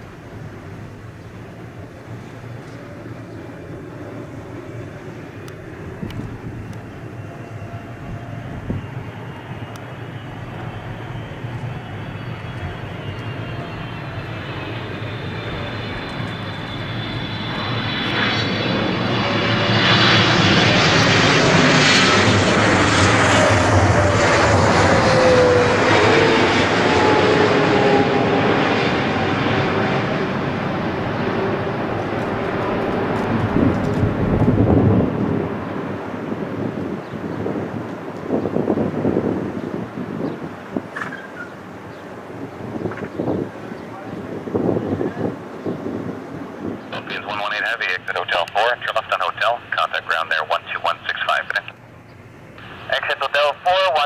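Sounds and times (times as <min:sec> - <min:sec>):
jet engines rumbling with fan whine: 0:00.0 - 0:54.0.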